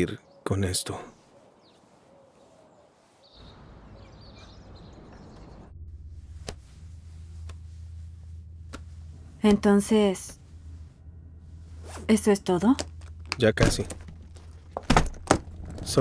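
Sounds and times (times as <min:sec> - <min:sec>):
faint bird chirps: 0:00.0 - 0:05.7
steady low indoor hum: 0:05.8 - 0:16.0.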